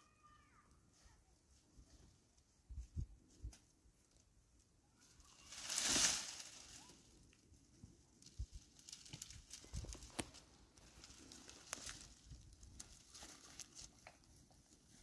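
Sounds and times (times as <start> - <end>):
rustling: 5.0 - 15.0.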